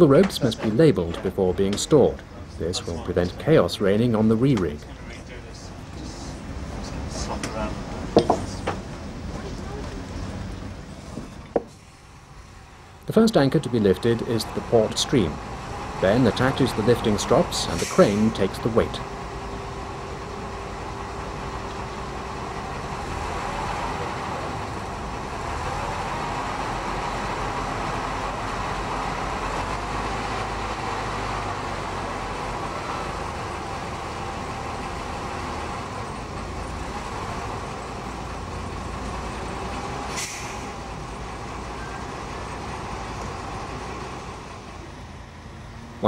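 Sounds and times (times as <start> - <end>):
crane engine running under load: 0.0 - 46.0
short hiss: 17.8 - 18.4, 40.1 - 40.8.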